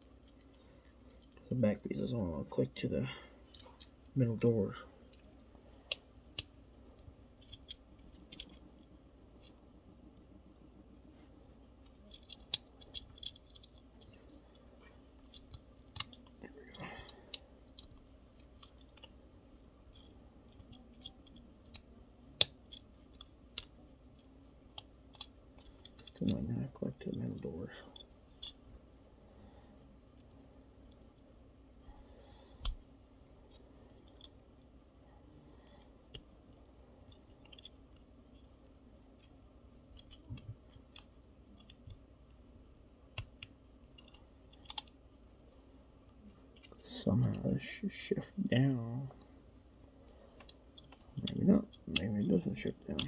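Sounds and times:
plastic toy parts clicking: 5.9 - 6.5, 7.3 - 9.6, 11.8 - 19.2, 19.8 - 26.4, 27.9 - 28.6, 32.6 - 32.8, 33.5 - 34.7, 37.1 - 42.1, 43.1 - 45.0, 50.3 - 53.0.

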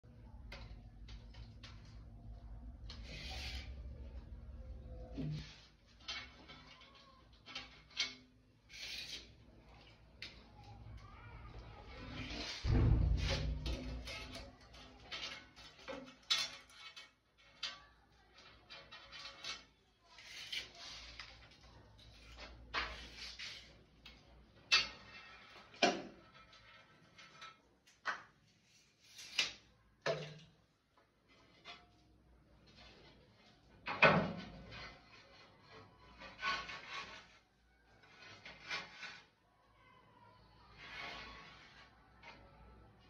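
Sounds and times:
tile scraping on concrete: 2.9 - 4.2, 7.4 - 10.4, 18.4 - 30.5, 34.4 - 39.4, 40.7 - 42.4.

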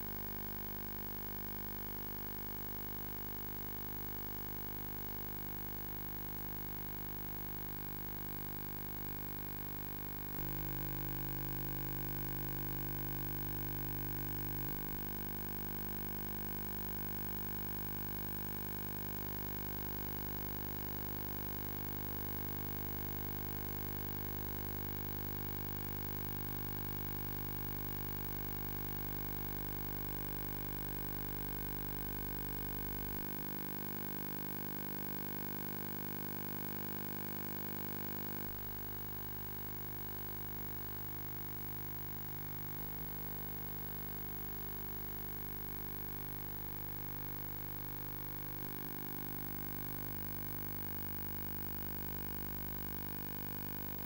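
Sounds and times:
electrical hum with hiss: 0.0 - 18.4.

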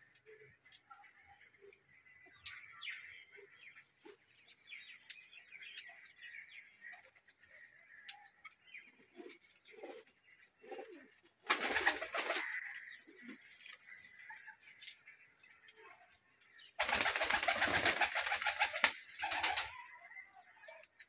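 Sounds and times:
pigeons cooing softly: 8.9 - 13.3
pigeon wings flapping: 11.5 - 12.5, 16.8 - 19.7.

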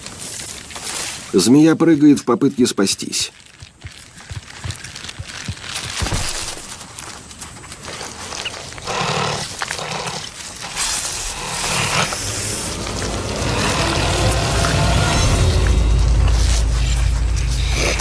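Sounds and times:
rustling and scuffling in brush: 0.0 - 18.0
harsh animal noise: 8.2 - 18.0.

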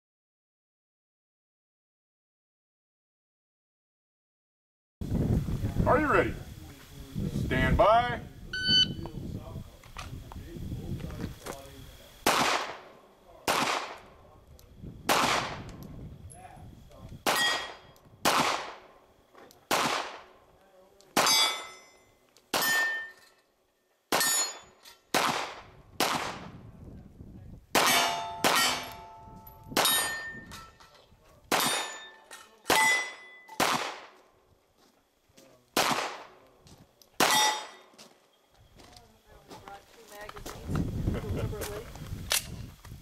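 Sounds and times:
handgun shots: 12.3 - 12.9, 13.5 - 14.1, 19.7 - 20.3, 24.1 - 26.4, 27.8 - 29.2, 31.5 - 32.1, 32.7 - 34.2, 35.8 - 36.4, 37.2 - 37.8
steel plate ringing: 17.3 - 17.9, 21.2 - 23.4, 24.2 - 25.1, 27.9 - 30.9, 31.6 - 33.6, 37.3 - 37.9.

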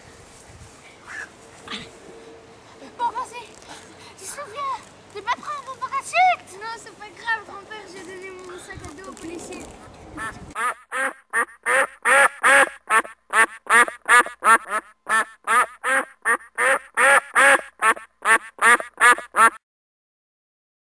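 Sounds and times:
duck quacking: 10.2 - 19.6.

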